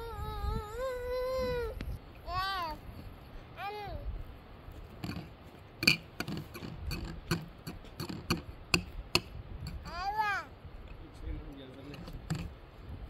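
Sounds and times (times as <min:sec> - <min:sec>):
plastic clicks and knocks: 0:11.9 - 0:12.5.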